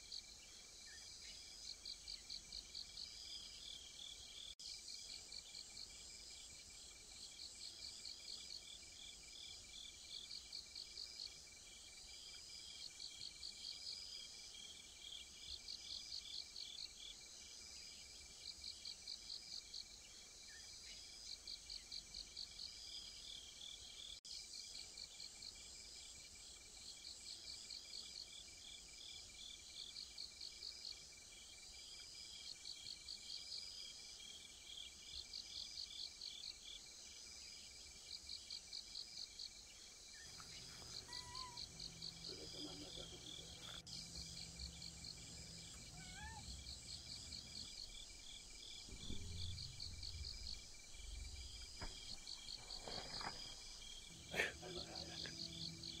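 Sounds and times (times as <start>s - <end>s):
crickets chirping: 0.0s - 56.0s
high-pitched insect trill: 38.1s - 56.0s.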